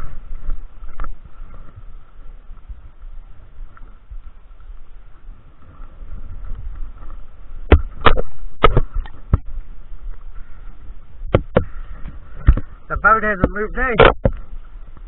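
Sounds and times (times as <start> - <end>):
wind and water rumble: 0.0 - 15.0.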